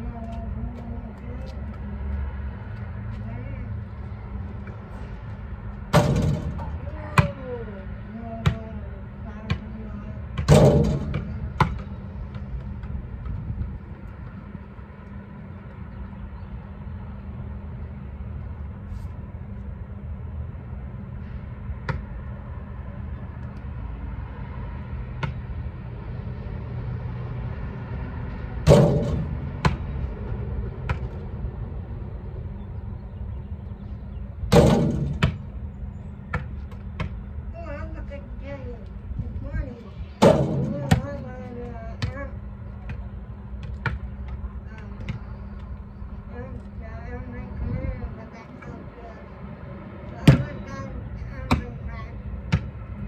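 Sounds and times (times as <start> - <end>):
steady low rumble: 0.0 - 53.0
basketball hitting hoop and asphalt: 5.7 - 7.5, 8.3 - 8.8, 9.4 - 14.9, 21.8 - 22.2, 25.0 - 25.8, 28.4 - 31.4, 34.4 - 37.3, 40.2 - 45.6, 50.2 - 53.0.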